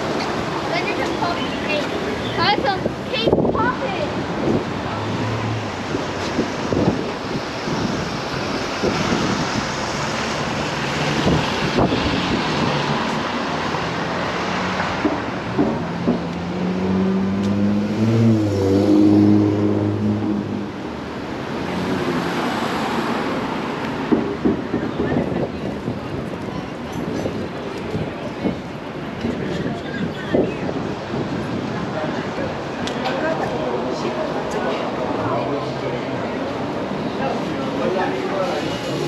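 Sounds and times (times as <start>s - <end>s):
traffic noise: 0.0s - 39.0s
vehicle engine passing: 4.1s - 23.8s.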